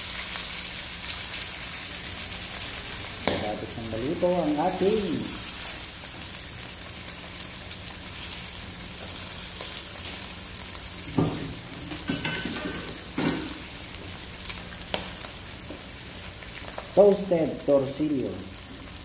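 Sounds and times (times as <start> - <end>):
fish sizzling in hot oil: 0.0 - 19.0.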